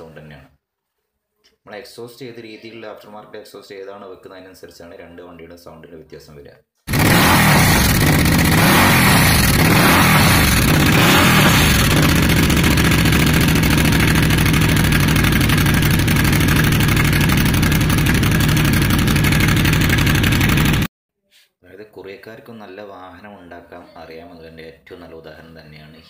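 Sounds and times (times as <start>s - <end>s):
motorcycle engine revving and idling: 6.9s - 20.9s.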